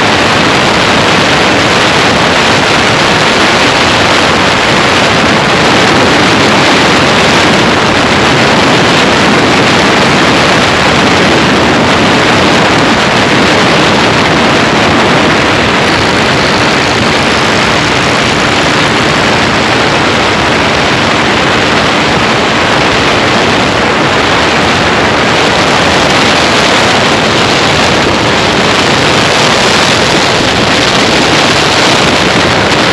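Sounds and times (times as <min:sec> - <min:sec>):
road noise: 0:00.0 - 0:32.9
wind buffeting microphone: 0:00.0 - 0:32.9.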